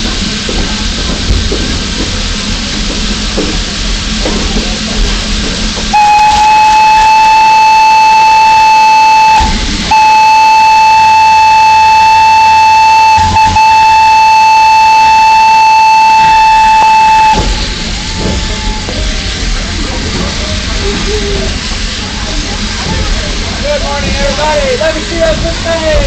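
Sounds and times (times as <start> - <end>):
steam engine hiss and rumble: 0.0 - 26.0
steam locomotive whistle: 5.9 - 19.0.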